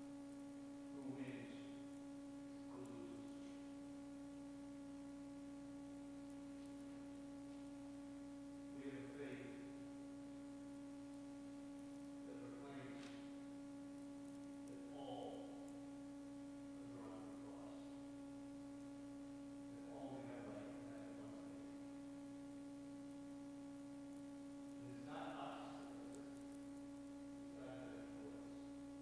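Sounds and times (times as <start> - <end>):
steady low hum: 0.0 - 29.0
man speaking faintly: 12.2 - 13.2, 19.8 - 21.6.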